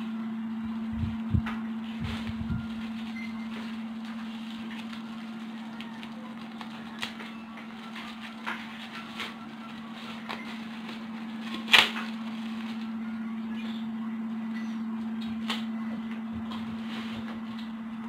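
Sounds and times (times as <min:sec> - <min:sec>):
steady low hum: 0:00.0 - 0:18.0
plastic wrap rustling: 0:00.9 - 0:13.9
plastic wrap crinkle: 0:01.8 - 0:13.0.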